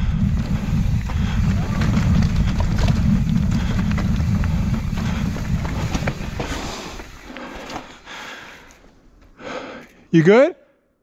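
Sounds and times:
wind rumbling on microphone: 0:00.0 - 0:07.3
bike clicks and knocks: 0:00.3 - 0:09.4.

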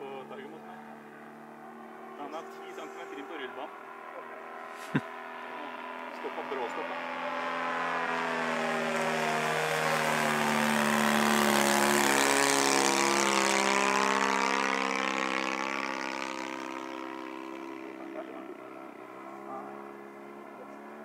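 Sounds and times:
model plane engine droning: 0:00.0 - 0:21.0.

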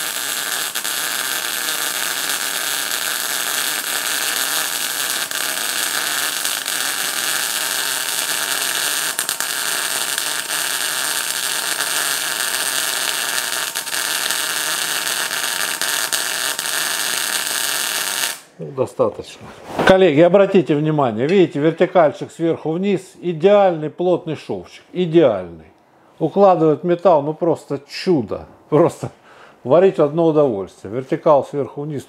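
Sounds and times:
welding arc hissing and crackling: 0:00.0 - 0:18.5.

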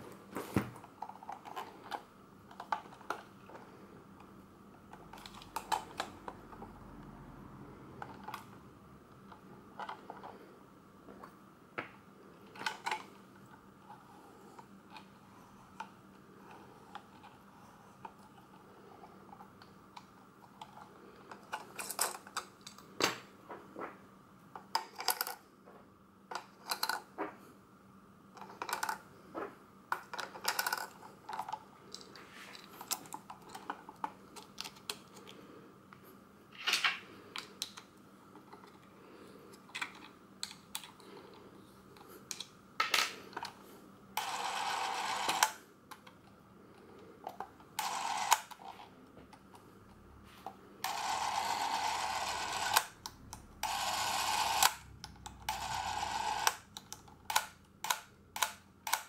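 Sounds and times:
movie camera whirring: 0:44.2 - 0:45.6, 0:47.7 - 0:48.6, 0:50.8 - 0:59.0.

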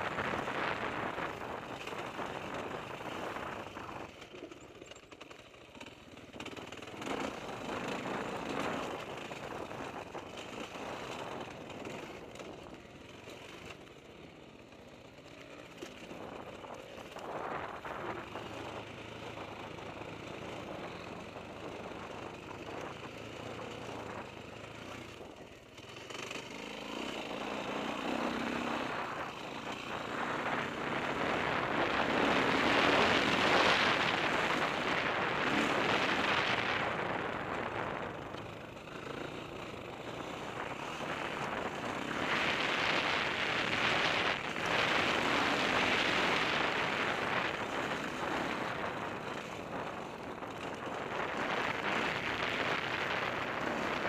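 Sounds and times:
wind noise on microphone: 0:28.8 - 0:38.8, 0:40.2 - 0:54.0.

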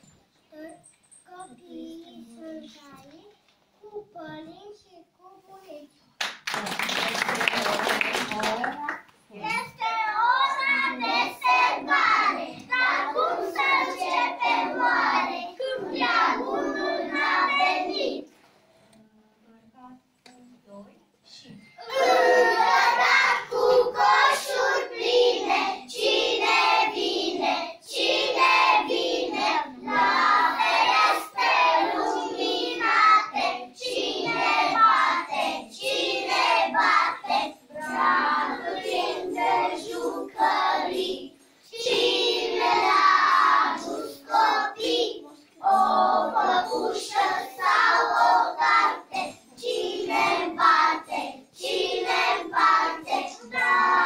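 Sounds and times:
children singing together: 0:09.7 - 0:18.4, 0:21.8 - 0:54.0.

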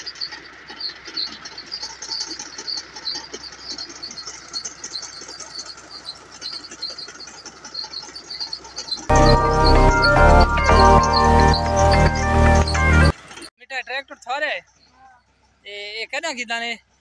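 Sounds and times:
faint outdoor rustle: 0:00.0 - 0:09.1, 0:13.1 - 0:17.0
small birds chirping: 0:00.0 - 0:17.0
loud background music: 0:09.1 - 0:13.1.

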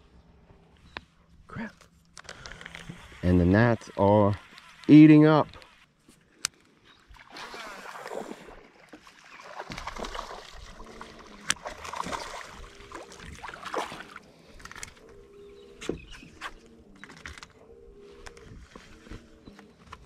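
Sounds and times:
fish splashing in water: 0:07.1 - 0:14.3.

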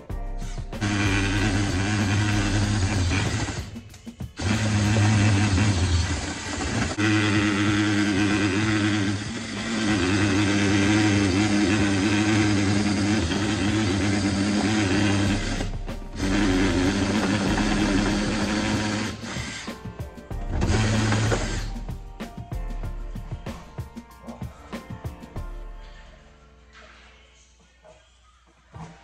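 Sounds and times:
drill trigger bursts: 0:00.4 - 0:21.9
cordless drill motor humming: 0:00.8 - 0:03.8, 0:04.4 - 0:19.7, 0:20.5 - 0:21.8.

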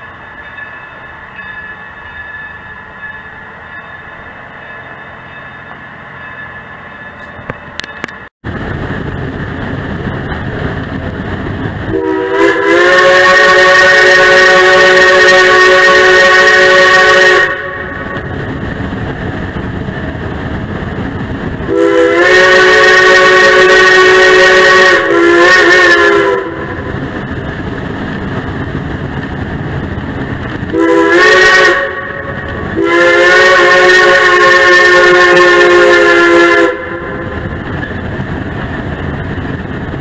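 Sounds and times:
train rumbling: 0:00.0 - 0:40.0
steam locomotive whistle: 0:11.9 - 0:18.5, 0:21.6 - 0:27.2, 0:30.7 - 0:38.0.

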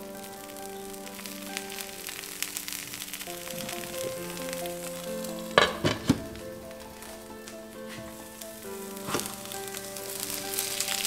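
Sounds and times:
omelette sizzling in a frying pan: 0:00.0 - 0:11.0
soft background music: 0:00.0 - 0:11.0.

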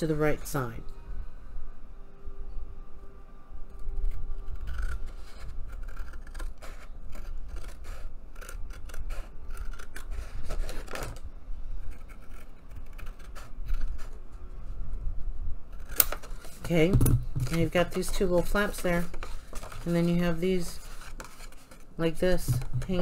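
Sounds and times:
scissors snipping paper: 0:04.1 - 0:11.2, 0:11.9 - 0:14.2, 0:15.7 - 0:16.7.

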